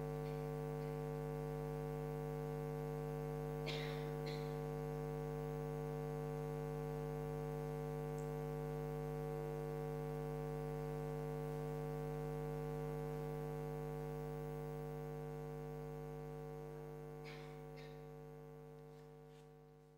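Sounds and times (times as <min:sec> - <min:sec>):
electrical hum: 0:00.0 - 0:19.9.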